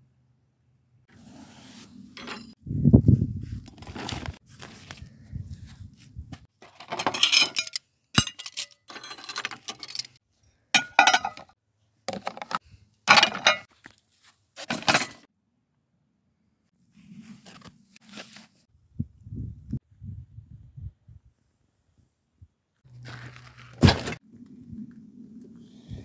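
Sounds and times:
metal cutlery clinking: 6.9 - 10.1.

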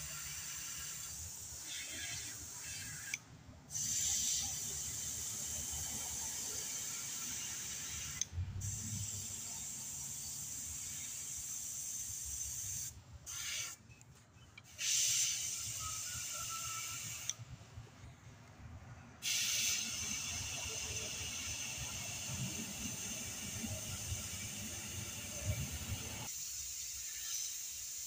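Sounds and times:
airbrush spraying hiss: 0.0 - 13.8, 14.7 - 17.4, 19.2 - 28.0.

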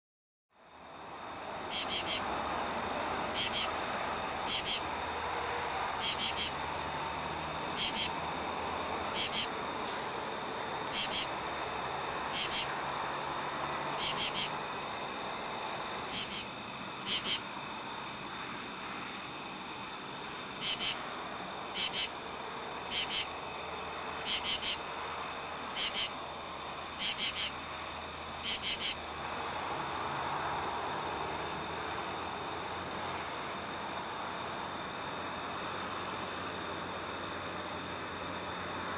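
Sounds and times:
katydid rasping call: 1.6 - 2.3, 3.2 - 3.8, 4.4 - 4.9, 5.9 - 6.6, 7.7 - 8.2, 9.0 - 9.6, 10.8 - 11.4, 12.2 - 12.8, 13.9 - 14.6, 16.0 - 17.5, 20.5 - 22.2, 22.8 - 23.4, 24.2 - 24.9, 25.7 - 26.2, 26.9 - 27.6, 28.3 - 29.0.

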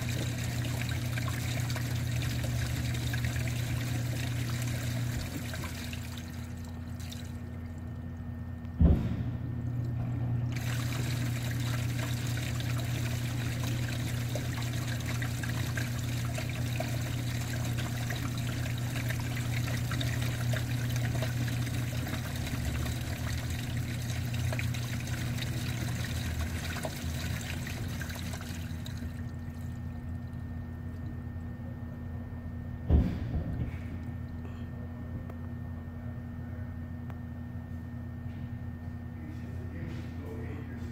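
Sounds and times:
water trickling through drain pipe: 0.0 - 8.4, 9.8 - 31.6
low steady hum: 0.0 - 40.9.

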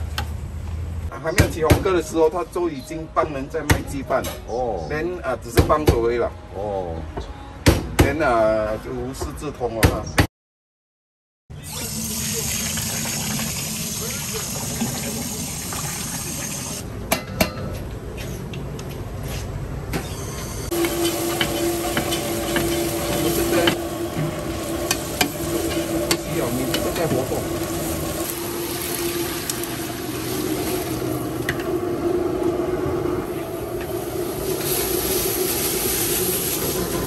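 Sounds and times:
frying sizzle: 11.7 - 16.8, 20.7 - 31.6, 33.3 - 37.0
steady hum: 20.7 - 37.0.

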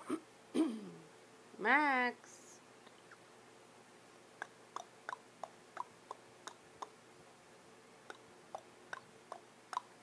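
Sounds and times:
parrot clicking beak and tongue: 4.4 - 6.9, 8.1 - 10.0.

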